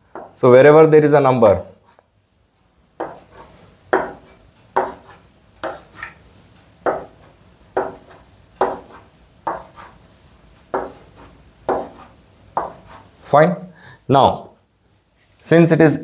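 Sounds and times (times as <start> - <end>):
chalk tapping on chalkboard: 0.1 - 0.4, 3.0 - 6.2, 6.8 - 10.0, 10.7 - 13.1
chalk scraping on chalkboard: 1.8 - 2.1, 3.0 - 6.2, 6.8 - 10.1, 10.7 - 13.3.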